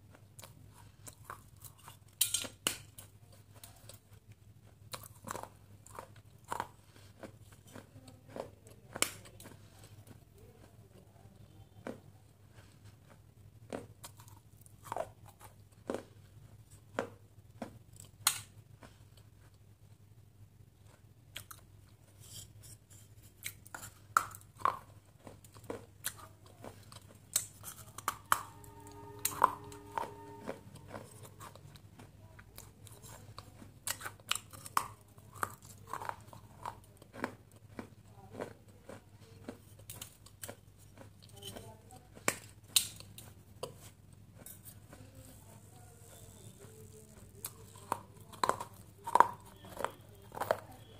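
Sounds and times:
chewing: 0.0 - 19.6, 20.8 - 50.9
low steady hum: 0.0 - 50.9
short pitched hum: 28.0 - 31.4
biting crunches: 30.8 - 41.6, 46.0 - 50.8.

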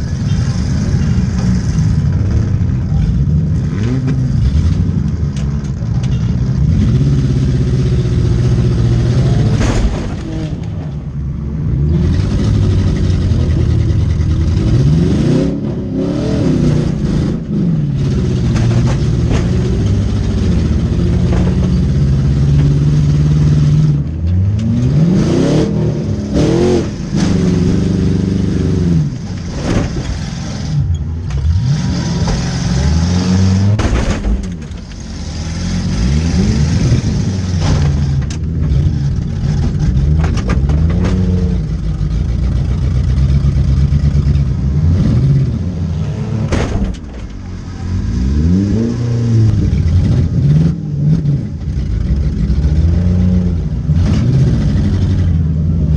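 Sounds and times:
car impact bangs: 9.4 - 11.2, 33.6 - 34.9, 46.3 - 47.6
car engine revving hard: 11.8 - 30.8, 31.4 - 33.9, 34.9 - 41.7, 47.8 - 51.5.

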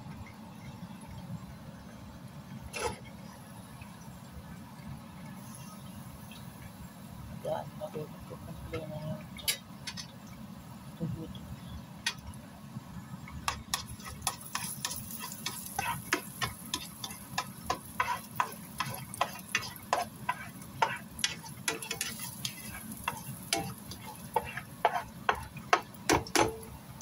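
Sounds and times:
garlic sizzling and popping in oil: 11.4 - 27.0.

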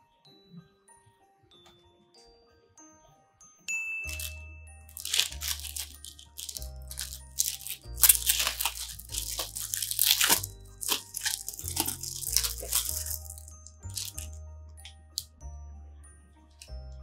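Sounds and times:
plastic wrapper crinkling: 4.1 - 14.4.

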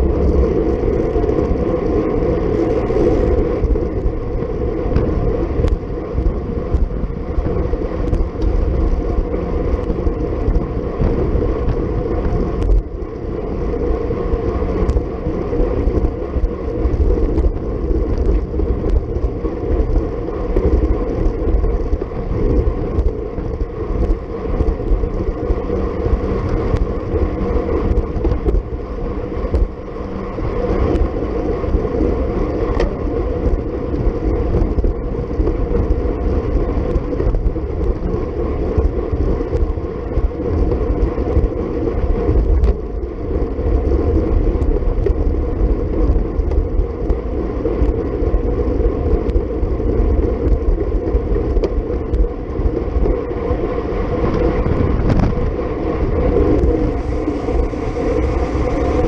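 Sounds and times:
road rumble: 0.0 - 59.0
wind buffeting: 0.0 - 59.0
faint ticks: 9.7 - 13.3, 14.7 - 15.0, 17.2 - 19.3.

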